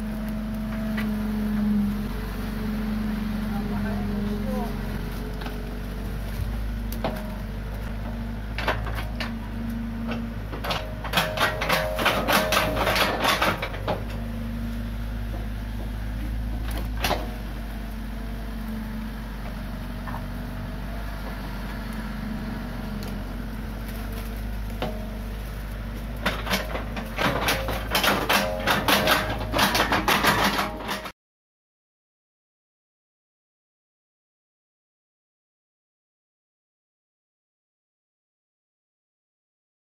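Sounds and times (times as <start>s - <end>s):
excavator diesel engine running: 0.0s - 31.1s
bucket knocking and clattering: 26.2s - 31.1s.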